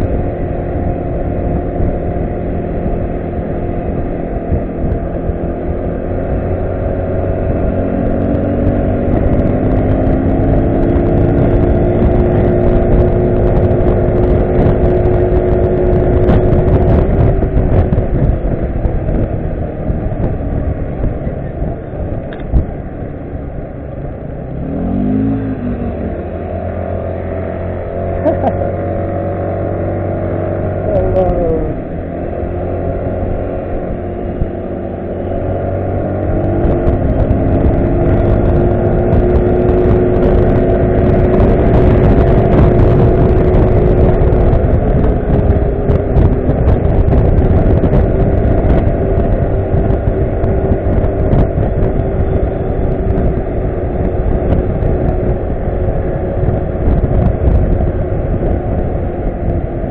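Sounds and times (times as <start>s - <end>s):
wind rumble on microphone: 0.0s - 59.9s
scooter engine running: 27.5s - 29.8s, 30.5s - 59.9s.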